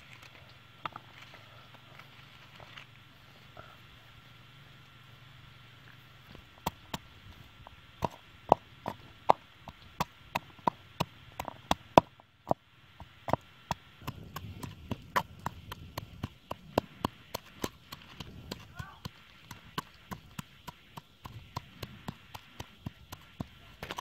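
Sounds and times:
pestle pounding in bowl: 0:08.0 - 0:24.0.

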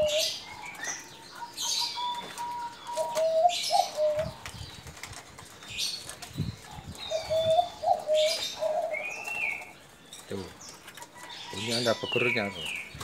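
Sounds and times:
dove cooing: 0:00.0 - 0:04.5, 0:06.5 - 0:09.9
wings flapping: 0:02.2 - 0:08.8.

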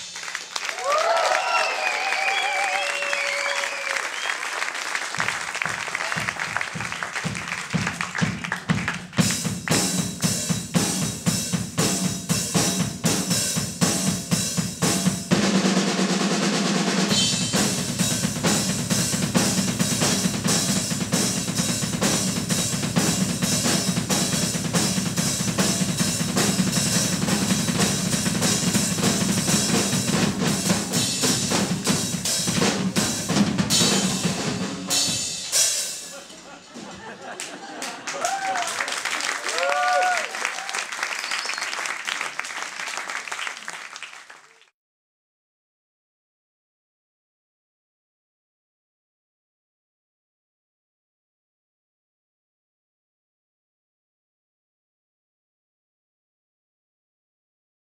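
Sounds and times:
drum kit kick and snare: 0:05.2 - 0:36.1.

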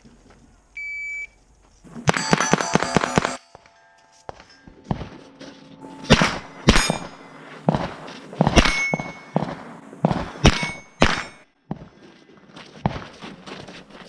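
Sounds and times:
rifle shots: 0:02.0 - 0:03.5, 0:06.1 - 0:11.4
steel plates ringing: 0:02.1 - 0:07.8, 0:08.6 - 0:11.4.

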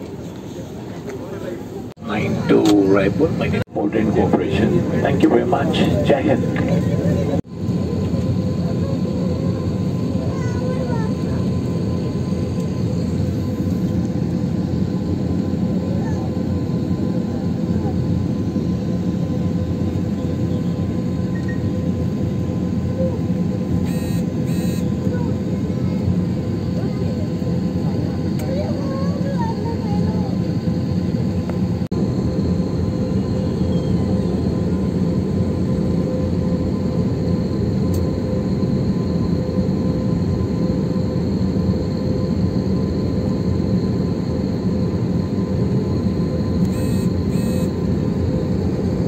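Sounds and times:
airliner cabin rumble: 0:00.0 - 0:49.0
short high beeps: 0:23.9 - 0:24.9, 0:46.7 - 0:47.7.

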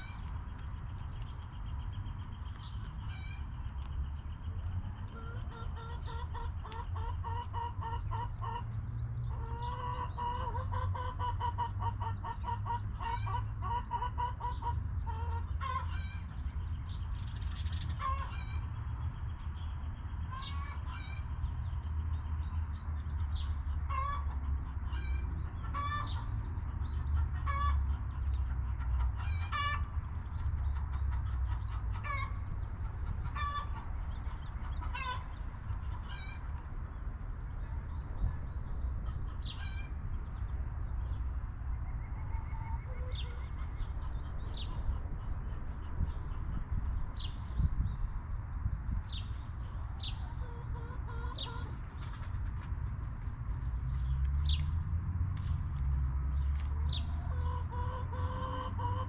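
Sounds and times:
chickens clucking: 0:04.5 - 0:16.6, 0:17.5 - 0:19.4, 0:20.3 - 0:21.3, 0:23.4 - 0:37.0, 0:42.2 - 0:47.6, 0:49.1 - 0:53.6, 0:56.5 - 0:59.0.

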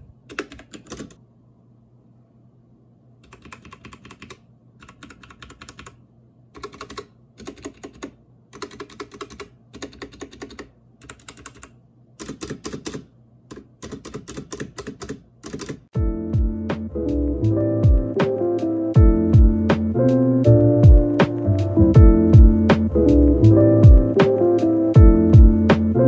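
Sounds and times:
mechanical keyboard keys clacking: 0:00.3 - 0:01.2, 0:03.2 - 0:06.0, 0:06.6 - 0:15.9.

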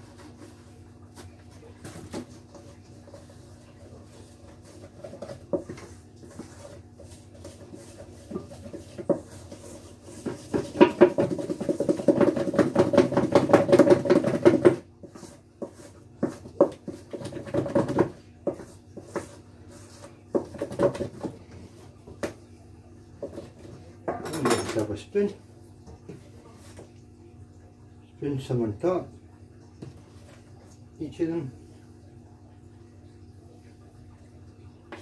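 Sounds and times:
wooden spoon beating in metal bowl: 0:04.5 - 0:21.4.

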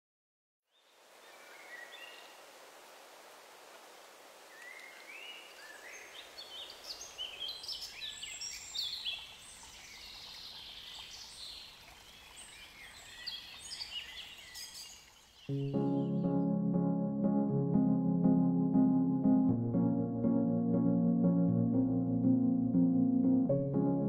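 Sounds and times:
faint outdoor hiss: 0:00.7 - 0:16.3.

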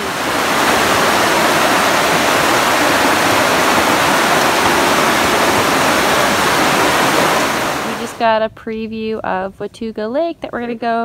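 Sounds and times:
waterfall rushing over rocks: 0:00.0 - 0:08.2.

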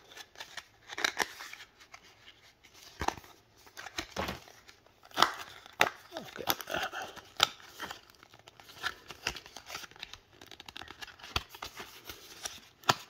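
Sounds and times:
paper packaging tearing and crinkling: 0:03.7 - 0:13.0.

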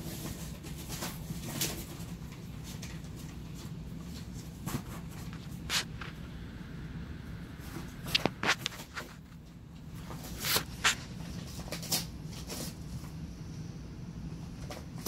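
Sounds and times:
puppy tearing cardboard: 0:10.1 - 0:12.8.

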